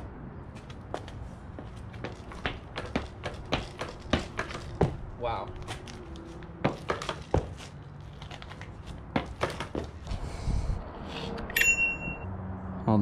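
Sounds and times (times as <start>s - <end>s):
scooter clicks and knocks: 2.4s - 5.0s, 6.7s - 7.5s, 8.2s - 10.0s.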